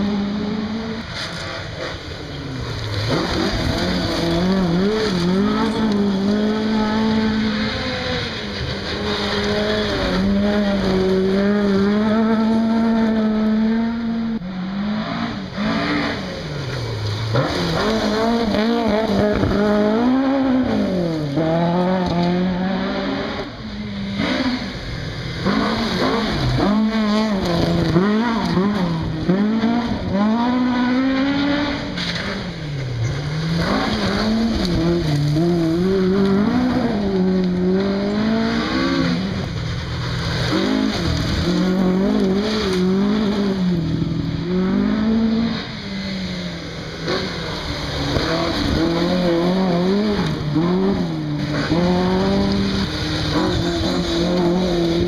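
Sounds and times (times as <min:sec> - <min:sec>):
rally car engines revving: 0:00.0 - 0:55.0
gravel hissing under tyres: 0:01.1 - 0:12.1, 0:31.9 - 0:44.4, 0:46.8 - 0:55.0.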